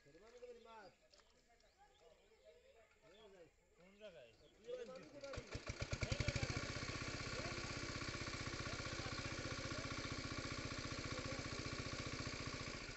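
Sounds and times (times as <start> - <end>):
small engine idling: 4.6 - 12.9.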